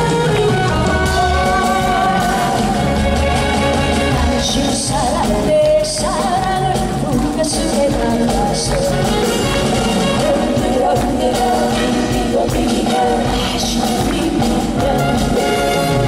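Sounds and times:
woman singing into microphone: 0.0s - 15.9s
band accompaniment with steady beat: 0.0s - 16.0s.

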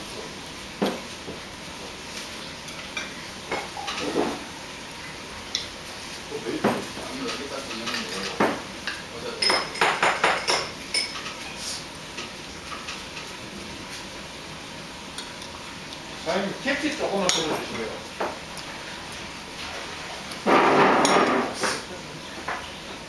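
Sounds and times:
utensils clinking on ceramic bowls: 6.8s - 11.4s.

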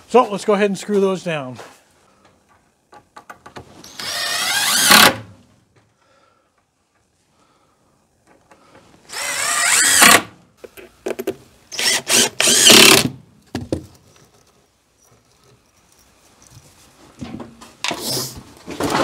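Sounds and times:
cordless drill driving screws: 3.8s - 5.2s, 9.1s - 10.3s, 11.7s - 13.1s.

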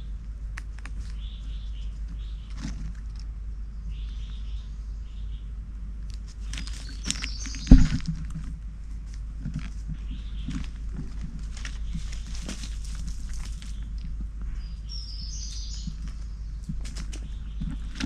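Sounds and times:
birds chirping faintly: 0.0s - 18.0s
dry leaves rustling and crackling: 6.2s - 18.0s.

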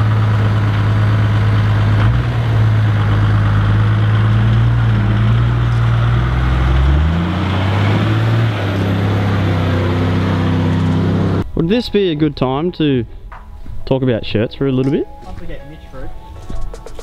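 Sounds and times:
off-road vehicle engine at low revs: 0.0s - 11.4s.

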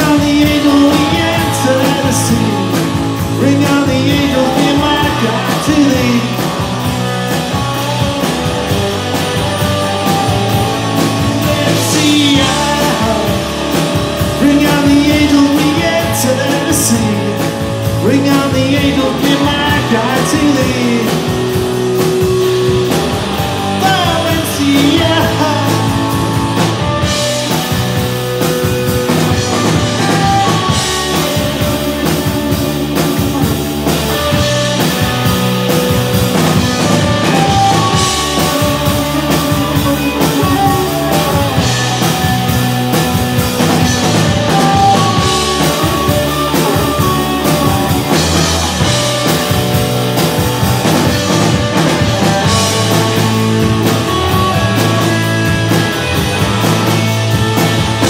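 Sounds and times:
person singing: 0.0s - 21.8s, 23.4s - 27.5s, 36.0s - 49.8s
bass guitar: 0.0s - 58.0s
drum kit: 0.0s - 58.0s
electric guitars: 0.0s - 58.0s.

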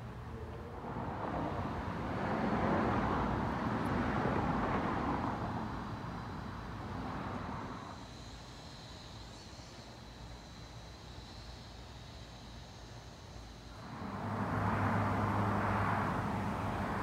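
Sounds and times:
vehicle passing by: 0.4s - 5.7s, 13.8s - 17.0s.

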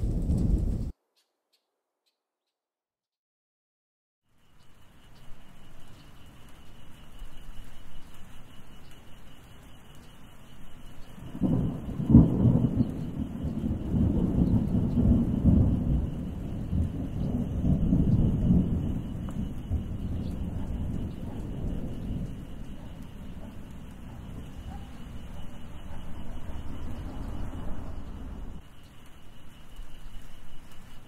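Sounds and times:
steady rain: 0.0s - 0.9s, 4.3s - 31.0s
thunder crack and rumble: 0.0s - 0.9s, 11.0s - 29.2s.

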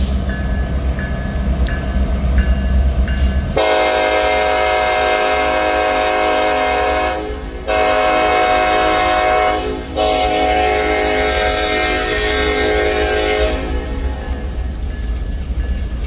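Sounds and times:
diesel locomotives rumbling: 0.0s - 16.0s
locomotive air horn chord: 3.6s - 14.1s.

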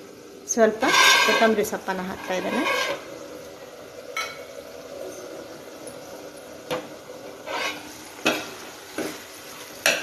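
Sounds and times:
faint curry sizzle: 0.0s - 10.0s
ladle stirring thick curry: 2.2s - 3.1s, 7.4s - 9.2s.

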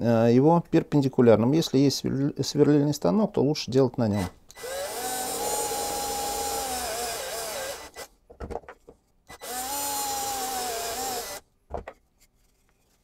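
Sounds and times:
cordless drill motor whining: 4.5s - 8.1s, 9.3s - 11.4s.

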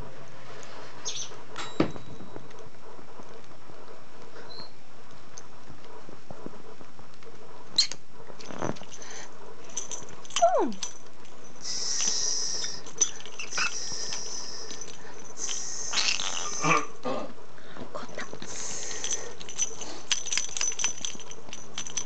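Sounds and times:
bird squeak: 1.0s - 1.3s, 13.4s - 14.5s, 15.8s - 16.6s
lovebird chattering: 1.0s - 1.3s, 13.4s - 14.8s, 15.4s - 16.9s.

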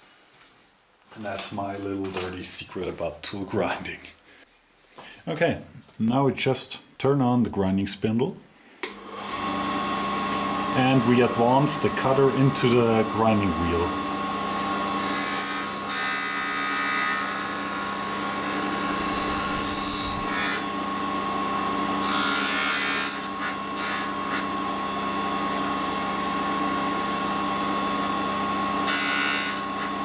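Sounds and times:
grinder motor whining: 9.0s - 30.0s.

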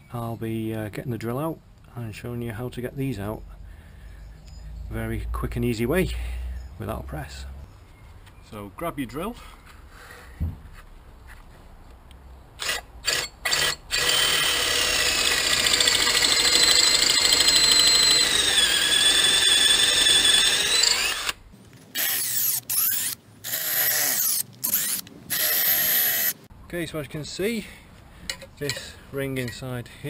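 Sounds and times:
cordless drill boring into rubber: 12.6s - 26.4s.

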